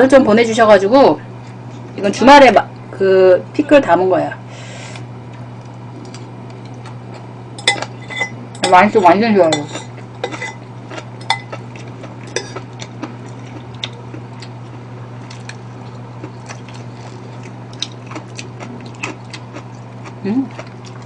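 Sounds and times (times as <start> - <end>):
steady low hum: 0.0 - 21.0
spoon clinking against ceramic bowl: 7.6 - 8.8, 9.5 - 10.6, 11.2 - 11.6.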